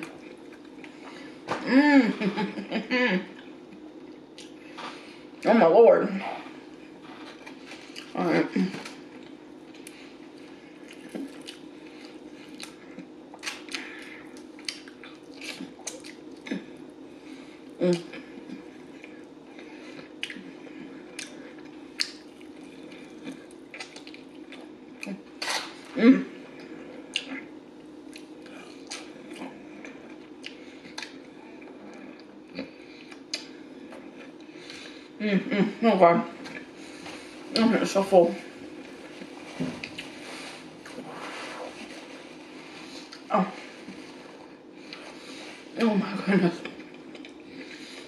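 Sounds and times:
faint steady hum: 0.0s - 48.0s
chewing and mouth smacks: 3.4s - 4.6s, 8.8s - 16.8s, 17.9s - 25.8s, 26.6s - 34.8s, 38.8s - 40.2s, 46.6s - 47.8s.

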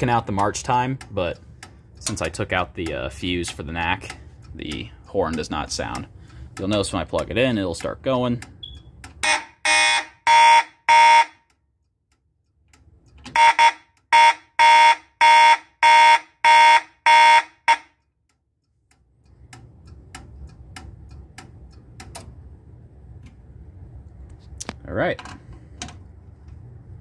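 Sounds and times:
faint relay clicks: 0.0s - 9.2s, 18.0s - 22.4s
fire alarm horn blasts: 8.6s - 11.6s, 13.3s - 18.1s.

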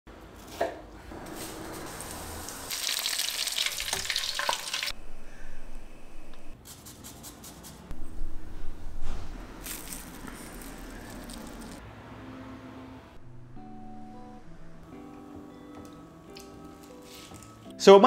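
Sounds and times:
fish deep-frying in oil: 1.8s - 4.9s.

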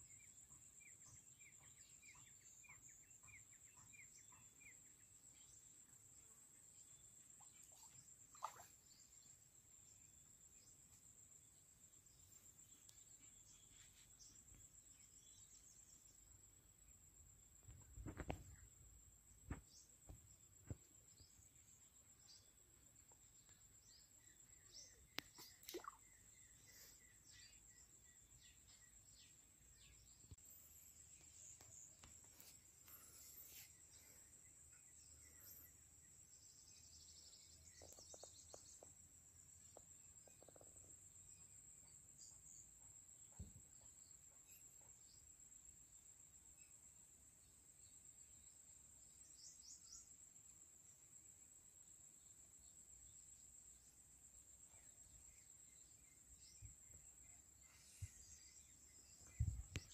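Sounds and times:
insects droning: 0.0s - 59.9s
bird chirps: 7.4s - 9.1s, 19.5s - 39.0s, 54.7s - 59.9s.

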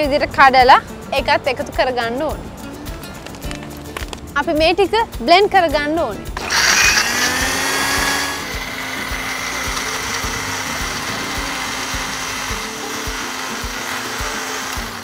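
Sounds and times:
blender motor whirring: 6.4s - 15.0s.

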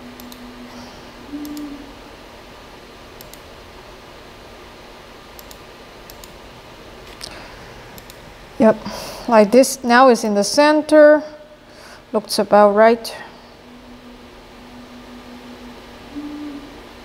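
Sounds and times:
short low tone: 0.0s - 2.0s, 13.6s - 17.0s
steady low hum: 0.0s - 17.0s.

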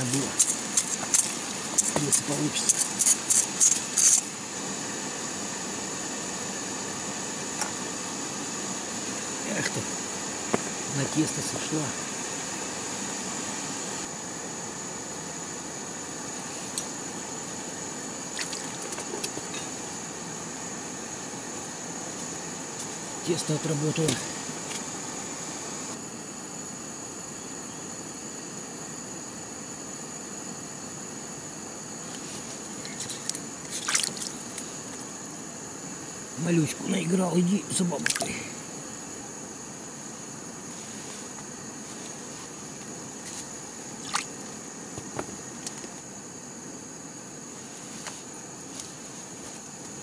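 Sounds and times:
steady hiss: 0.0s - 50.0s
thin high whine: 0.0s - 50.0s
wet clicks and splashy rustles: 18.4s - 19.4s, 32.9s - 34.6s, 38.0s - 38.3s, 44.0s - 44.3s.

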